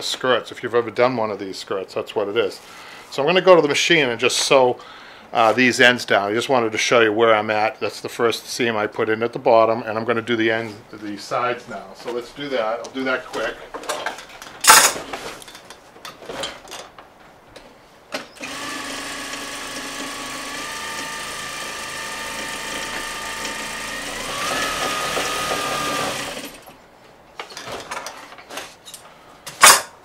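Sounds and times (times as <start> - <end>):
sewing machine stitching: 18.4 - 26.7.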